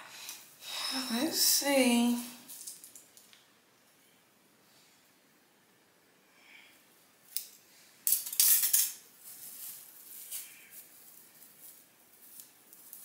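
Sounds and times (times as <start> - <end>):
crackly rustle of hair rollers: 2.4 - 3.5, 7.3 - 13.0.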